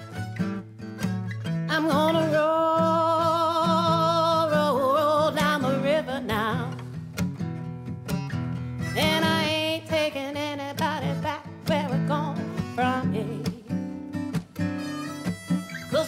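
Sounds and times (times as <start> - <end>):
plucked acoustic guitar: 0.0 - 16.0
person singing with vibrato: 1.7 - 6.8, 8.9 - 14.0, 15.0 - 16.0.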